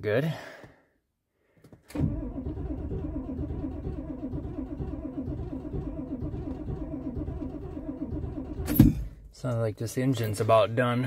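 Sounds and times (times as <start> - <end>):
diesel engine cranking: 1.9 - 9.3.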